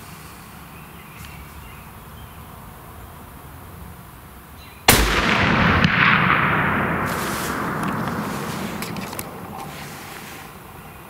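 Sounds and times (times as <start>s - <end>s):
rifle shot: 4.9s - 10.7s.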